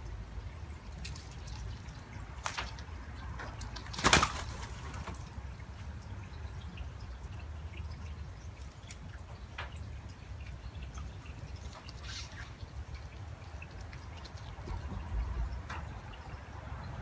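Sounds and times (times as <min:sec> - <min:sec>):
dove wings clattering: 0:03.5 - 0:05.4.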